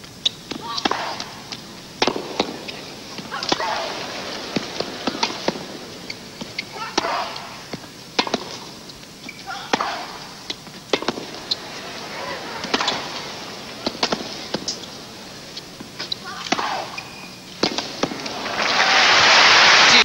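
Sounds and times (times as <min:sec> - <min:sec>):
tennis ball bouncing on court: 0:00.2 - 0:18.4
tennis ball struck by racquet: 0:00.5 - 0:05.8, 0:06.5 - 0:08.7, 0:09.6 - 0:17.0, 0:17.6 - 0:18.4.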